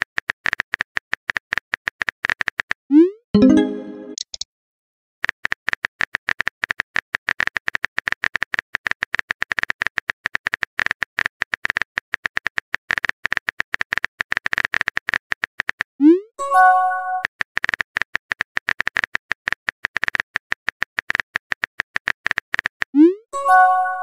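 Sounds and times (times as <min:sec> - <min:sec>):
touchscreen keyboard clicks: 0:03.4 - 0:04.4.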